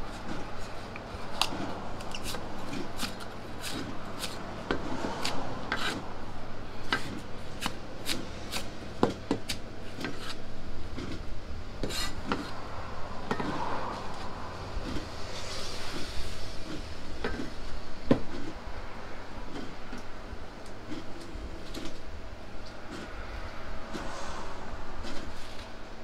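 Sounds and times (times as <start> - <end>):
knife slicing cabbage: 1.4 - 4.4.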